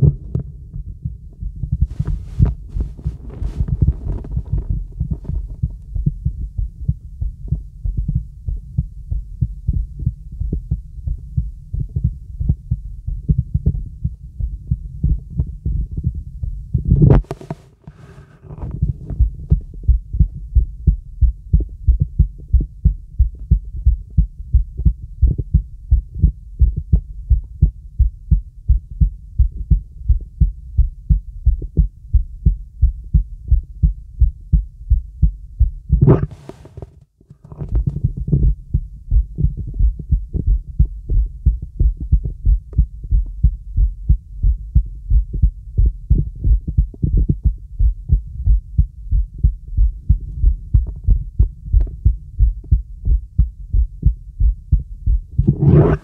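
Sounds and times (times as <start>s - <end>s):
heartbeat through stethoscope: 0.0s - 56.0s
rustling noise: 1.8s - 5.8s, 16.9s - 19.8s, 35.9s - 38.4s, 55.4s - 56.0s.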